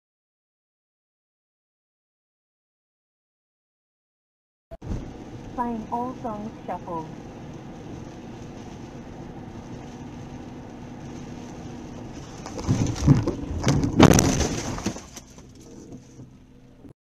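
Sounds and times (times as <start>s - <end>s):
car driving on wet road: 4.8s - 16.9s.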